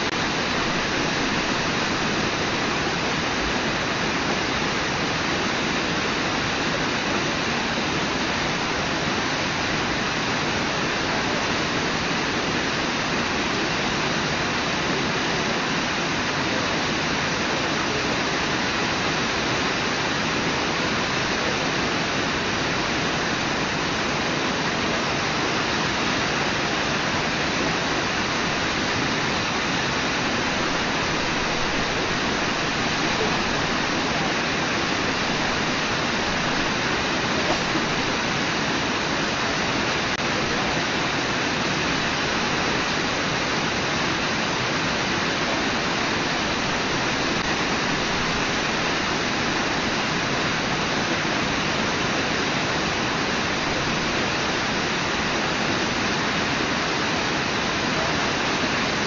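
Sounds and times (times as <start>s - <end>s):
water rushing over rocks: 0.0s - 59.0s.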